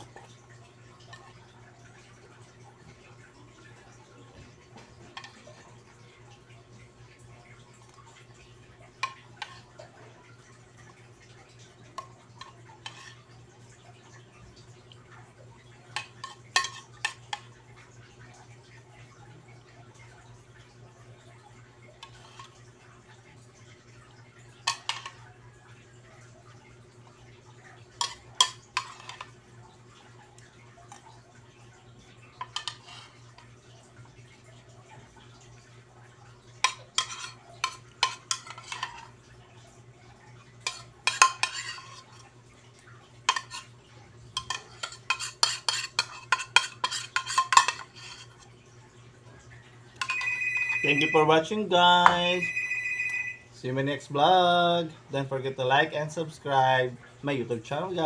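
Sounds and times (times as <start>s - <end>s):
spoon scraping plastic bowl: 36.7s - 39.2s, 40.7s - 42.2s, 43.3s - 43.7s, 44.4s - 48.4s
metal spoon scraping plastic bowl: 44.4s - 48.4s.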